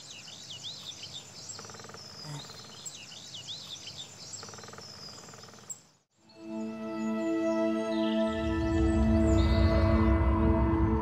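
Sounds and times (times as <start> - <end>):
small birds chirping: 0.0 - 6.7.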